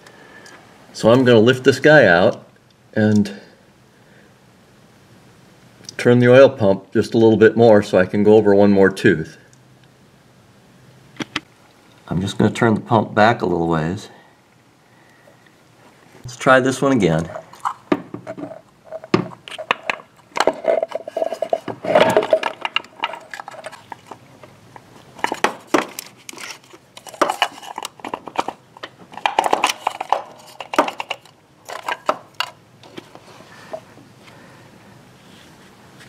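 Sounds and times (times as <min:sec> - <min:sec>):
metal clicks and scrapes: 0:17.3 - 0:33.2.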